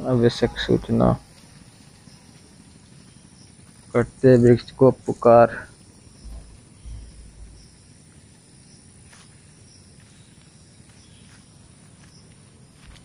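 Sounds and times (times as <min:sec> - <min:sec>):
insects chirping faintly: 0:00.0 - 0:13.0
low bumps on microphone: 0:06.2 - 0:07.8.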